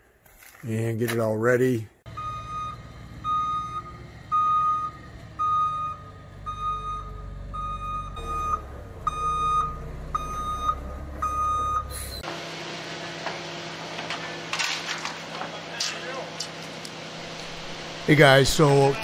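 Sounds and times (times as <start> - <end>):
diesel engine rumble: 2.0 - 19.0
truck reverse alarm beeping: 2.1 - 12.3.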